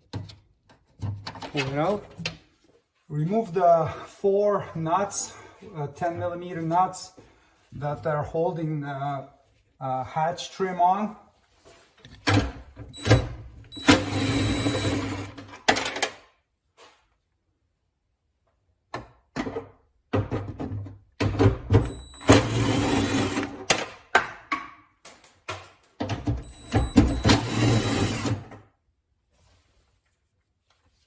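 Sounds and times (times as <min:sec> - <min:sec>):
impact driver running in bursts: 0:26.6 - 0:28.4.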